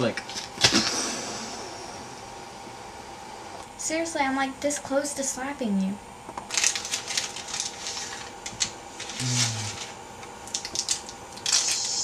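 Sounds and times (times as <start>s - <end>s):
candy wrapper crinkling: 6.4s - 12.0s.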